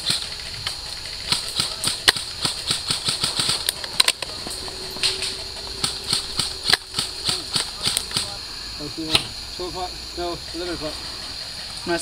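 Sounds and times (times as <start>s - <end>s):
steady hum: 0.0s - 12.0s
airsoft gunfire snaps: 1.3s - 4.2s.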